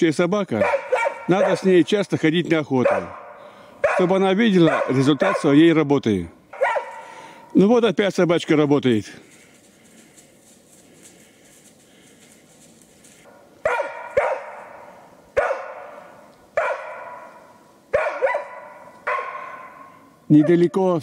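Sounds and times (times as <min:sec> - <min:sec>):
dog barking with echo: 0:00.6 - 0:01.8, 0:02.8 - 0:05.6, 0:06.5 - 0:07.5, 0:13.6 - 0:20.7.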